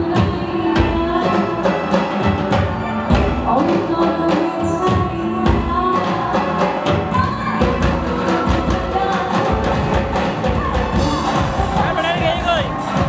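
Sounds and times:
woman singing: 0.0 - 12.0
live band playing: 0.0 - 13.0
steady drum beat: 4.7 - 13.0.

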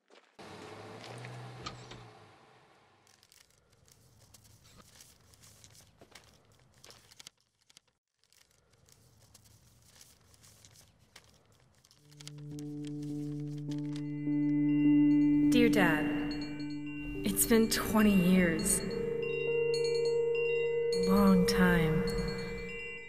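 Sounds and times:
paper crackling and tearing: 3.0 - 14.1.

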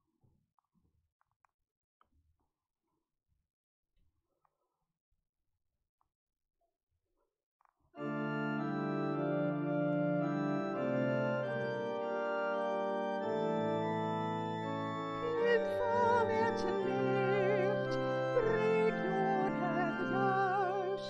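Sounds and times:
church organ chords: 8.0 - 21.0
woman singing with vibrato: 15.2 - 21.0.

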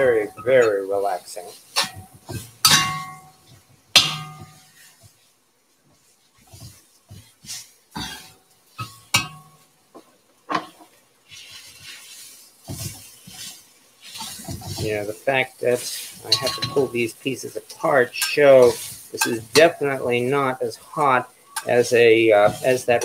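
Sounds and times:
faint sizzling: 0.0 - 23.0
spatula clanking against wok: 1.7 - 4.8, 8.0 - 9.6.

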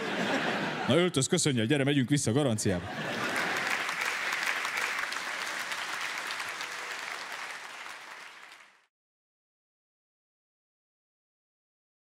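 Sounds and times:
audience applauding: 3.1 - 8.9.

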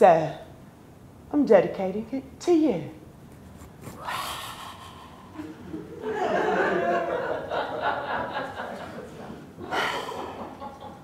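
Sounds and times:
audience laughing: 5.4 - 11.0.

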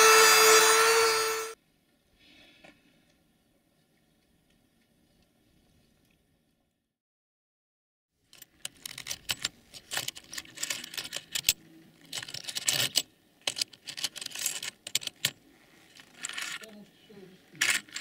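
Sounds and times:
metal bits rattling in plastic box: 8.3 - 16.7, 17.6 - 18.0.

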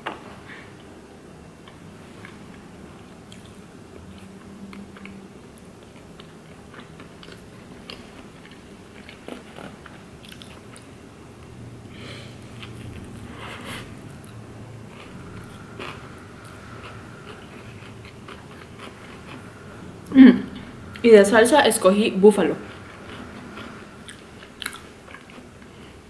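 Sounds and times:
person chewing food: 3.3 - 10.9, 12.4 - 21.0, 22.7 - 26.0.

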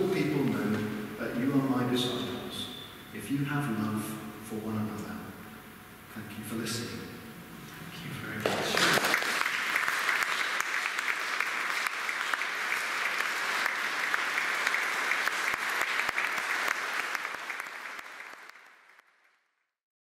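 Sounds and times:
audience applauding: 8.4 - 19.4.

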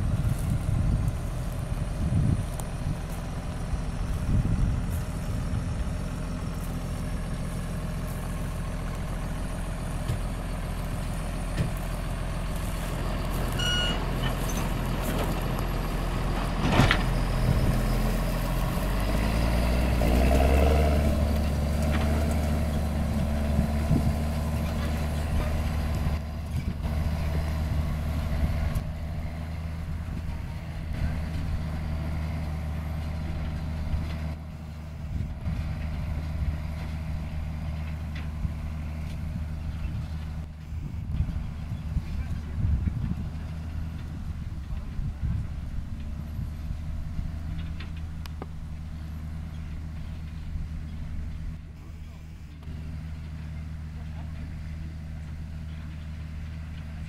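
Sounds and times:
tractor diesel engine under load: 0.0 - 57.0
short high beep: 13.6 - 14.0, 40.7 - 41.1, 51.8 - 52.6.

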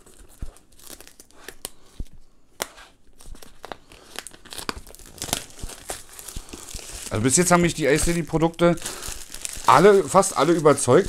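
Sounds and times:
cardboard rustling: 3.3 - 11.0.

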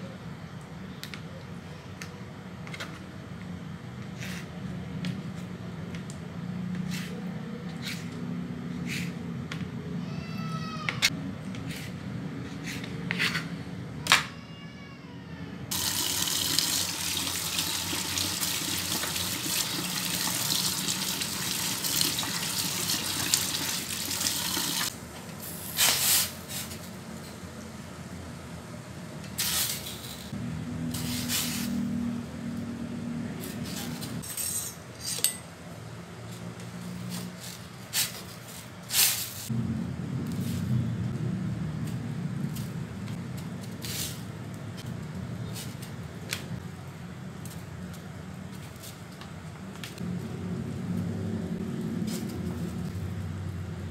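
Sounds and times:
water running: 15.7 - 24.9.

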